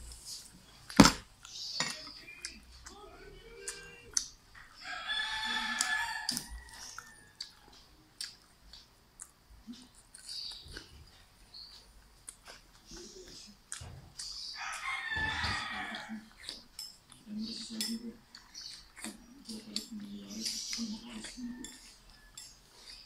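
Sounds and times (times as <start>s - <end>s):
eating clicks and crunches: 0.9s - 4.7s, 5.4s - 23.0s
rooster crowing: 4.8s - 7.6s, 14.6s - 16.3s.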